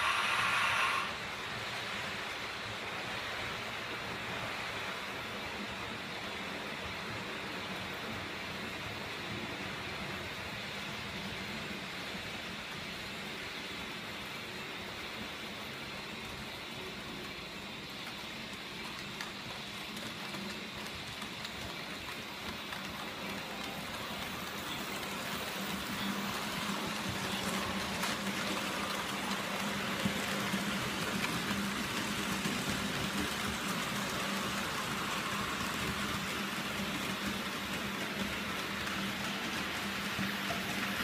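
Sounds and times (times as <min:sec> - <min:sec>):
model train wheels rumbling on rails: 0:00.0 - 0:41.0.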